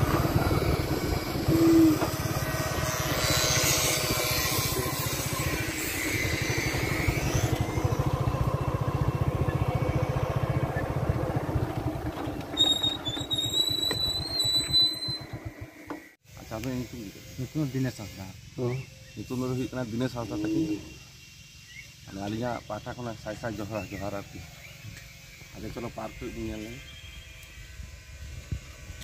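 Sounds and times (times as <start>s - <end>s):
small engine running: 0.0s - 29.0s
thin high whistling tones: 0.7s - 8.0s, 18.6s - 27.9s.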